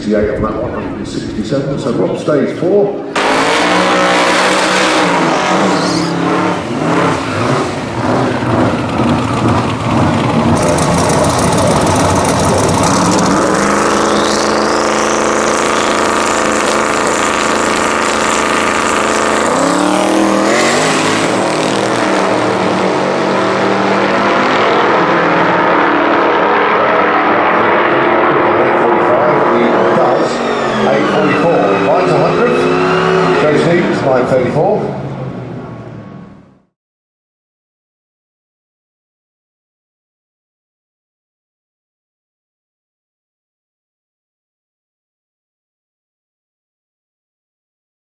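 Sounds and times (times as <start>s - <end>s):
drag car engine revving: 3.1s - 36.2s.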